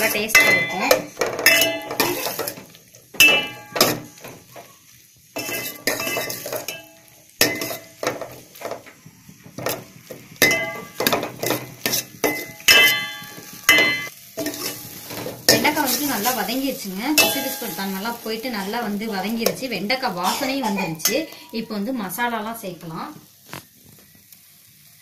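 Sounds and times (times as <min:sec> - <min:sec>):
spoon scraping metal pot: 0:00.0 - 0:04.3, 0:05.4 - 0:08.8, 0:09.6 - 0:16.4.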